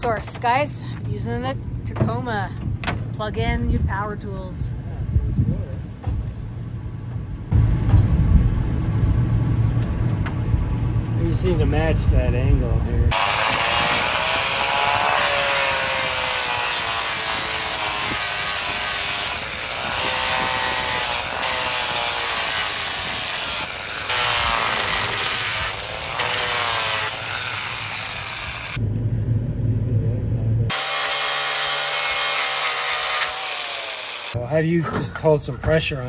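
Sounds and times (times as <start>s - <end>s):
low hum: 0.3s - 13.2s, 27.0s - 30.8s
angle grinder grinding wood: 13.1s - 28.8s, 30.7s - 34.4s.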